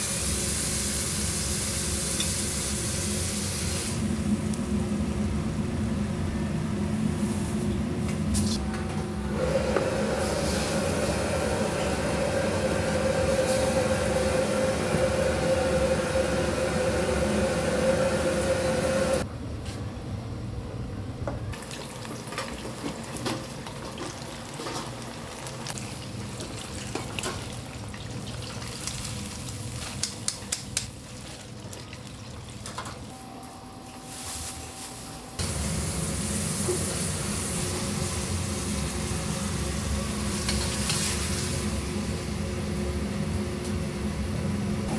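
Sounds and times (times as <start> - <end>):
loud kitchen roar: 0.0 - 44.9
oil bubbling in deep fryer: 21.6 - 33.0.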